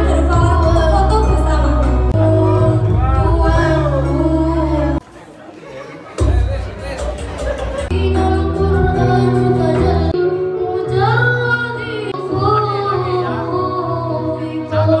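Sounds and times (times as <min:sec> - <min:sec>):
woman singing: 0:00.0 - 0:05.0, 0:07.9 - 0:15.0
instrumental music: 0:06.2 - 0:15.0.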